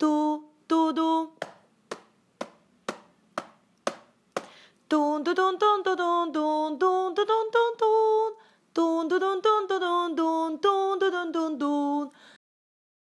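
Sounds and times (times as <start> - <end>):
sharp taps: 1.4 - 4.6.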